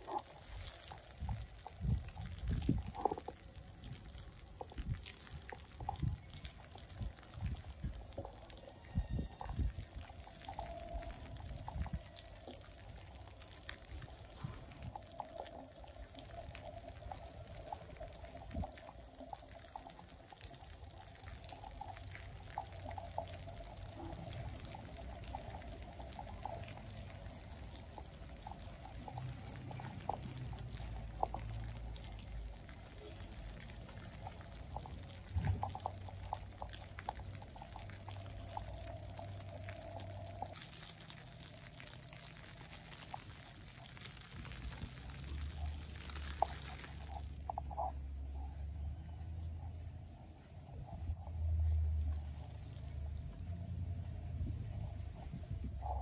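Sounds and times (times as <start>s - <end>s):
low rumble: 47.0s - 56.0s.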